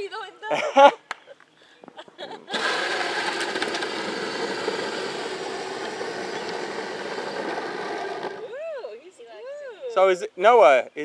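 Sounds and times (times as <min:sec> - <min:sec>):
plastic wheels rumbling on asphalt: 0:02.5 - 0:08.4
electric motors whining: 0:02.5 - 0:08.7.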